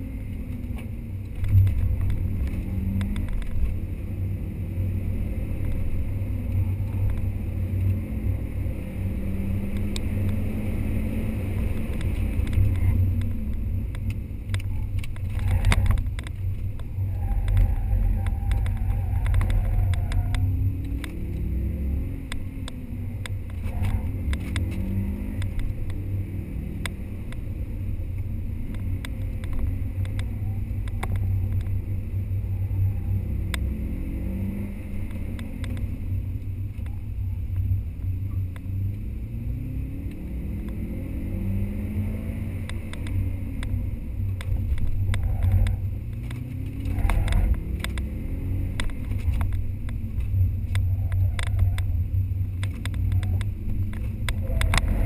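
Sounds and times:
heavy low rumble: 0.0 - 41.1, 42.4 - 55.0
car engine revving: 0.0 - 55.0.

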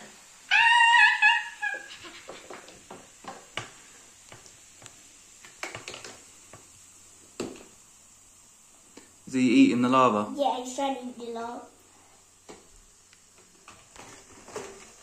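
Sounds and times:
child's excited cry: 0.5 - 2.5.

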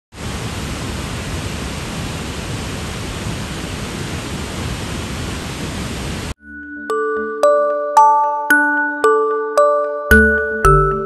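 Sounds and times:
waterfall rushing: 0.2 - 6.4.

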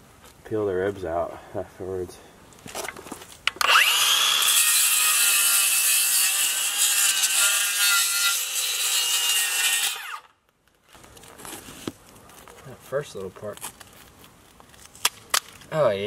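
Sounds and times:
circular saw cutting: 3.6 - 10.3.

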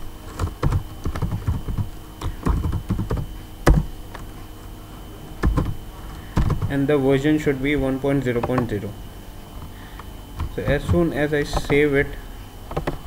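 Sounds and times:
typing on keyboard: 0.4 - 3.8.

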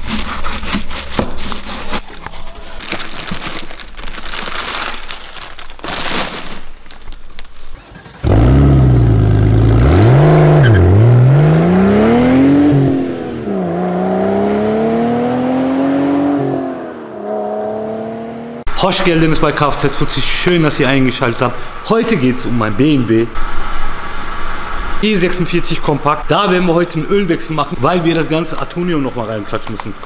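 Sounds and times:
plastic wrapping crinkling: 0.0 - 7.9
car engine revving: 8.0 - 18.7.

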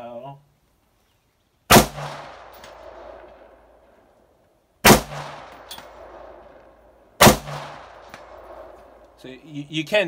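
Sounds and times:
rifle shot with long echo: 1.7 - 4.1, 4.8 - 9.2
bullet clanging on steel target: 5.4 - 6.0.

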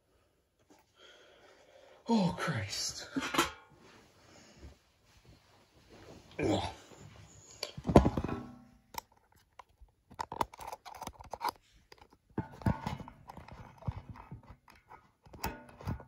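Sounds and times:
handling knocks and rustles: 7.3 - 16.0.

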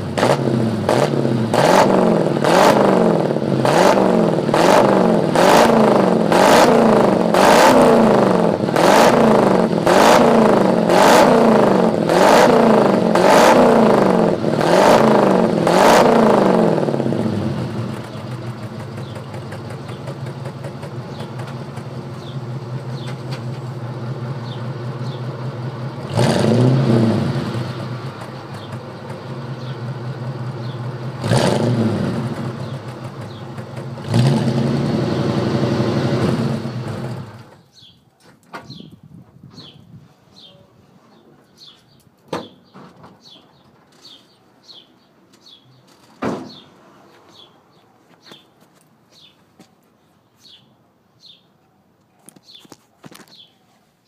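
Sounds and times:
car engine revving and idling: 0.0 - 37.6.

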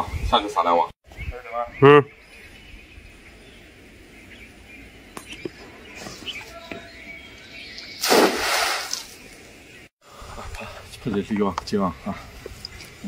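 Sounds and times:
net splashing into pond: 8.0 - 9.2.

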